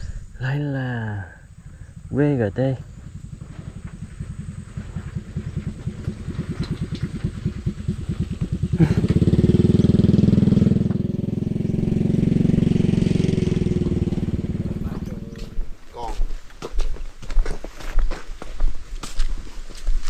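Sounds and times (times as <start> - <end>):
small engine puttering: 1.6 - 15.8.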